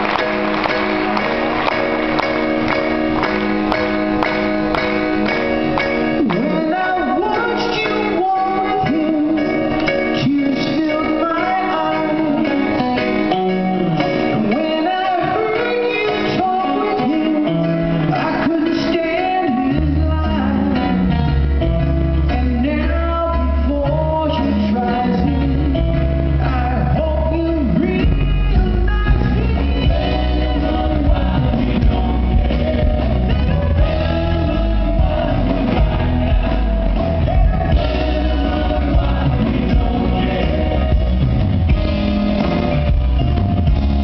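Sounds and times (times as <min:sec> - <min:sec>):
live band playing: 0:00.0 - 0:44.0
person singing: 0:05.8 - 0:21.4.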